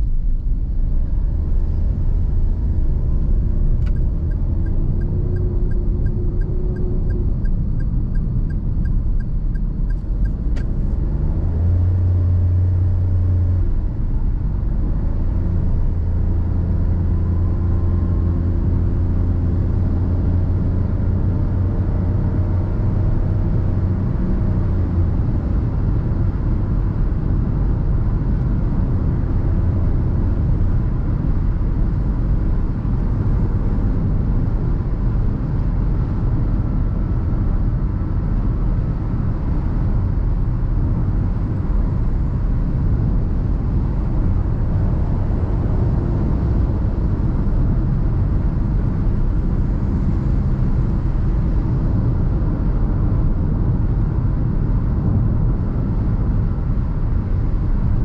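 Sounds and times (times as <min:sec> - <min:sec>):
low engine drone: 0:00.0 - 0:58.0
turn signal ticking: 0:02.9 - 0:11.2.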